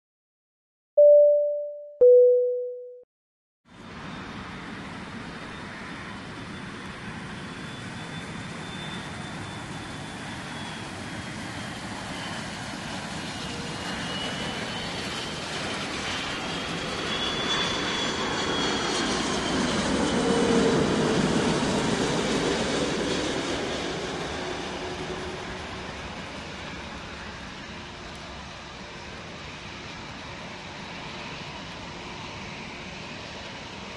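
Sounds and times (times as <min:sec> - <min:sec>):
two-note chime: 0:01.0 - 0:03.0
jet airliner flying over: 0:03.8 - 0:33.9.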